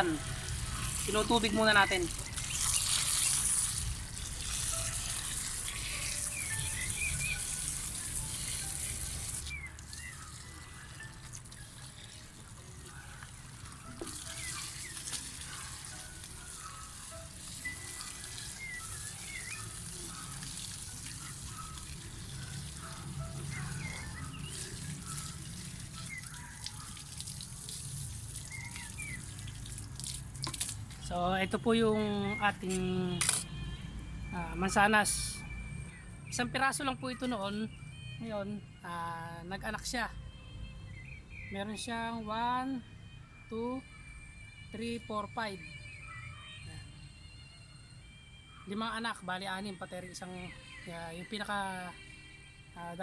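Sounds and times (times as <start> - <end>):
hose water splashing onto mud: 0.0 - 31.1.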